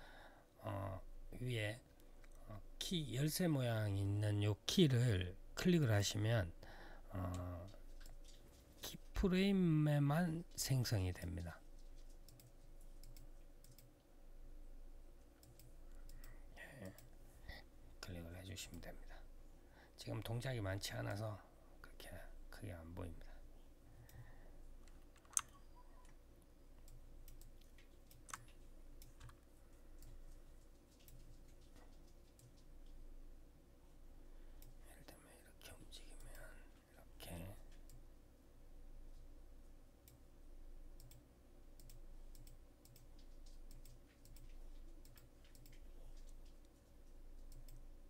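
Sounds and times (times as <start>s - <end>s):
faint steady hum: 0.0s - 48.0s
computer mouse clicks: 7.3s - 8.6s, 11.7s - 14.0s, 15.3s - 17.2s, 24.8s - 26.2s, 26.8s - 33.0s, 34.6s - 34.8s, 36.1s - 36.5s, 41.0s - 41.2s, 41.8s - 47.9s
mouse buttons clicking: 24.9s - 26.2s.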